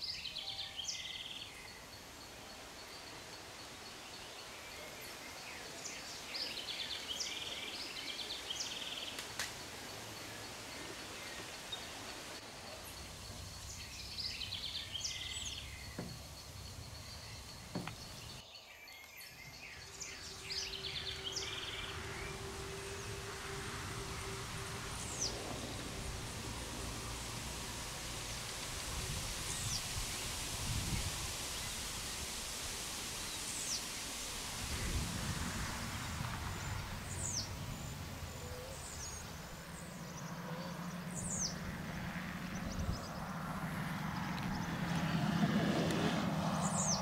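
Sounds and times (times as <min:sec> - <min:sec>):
songbird singing: 0:00.0 - 0:47.0
high pulsing tone: 0:19.8 - 0:28.0.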